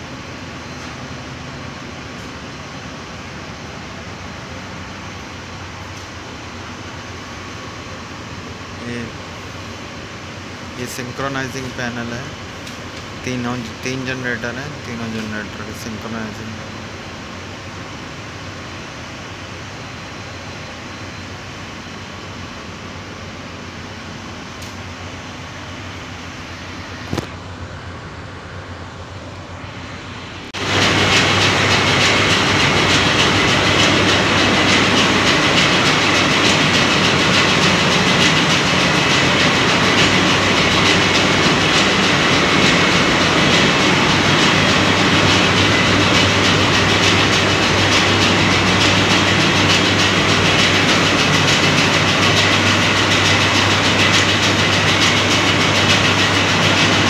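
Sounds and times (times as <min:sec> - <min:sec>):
air conditioning hum: 0:00.0 - 0:57.0
engine room machinery din: 0:00.0 - 0:57.0.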